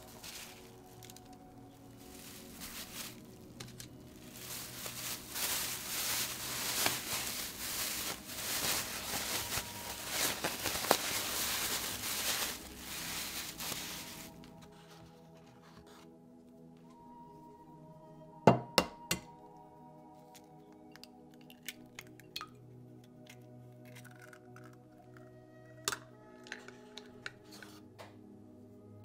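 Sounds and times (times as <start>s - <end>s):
plastic bag crinkling: 0.0s - 14.9s.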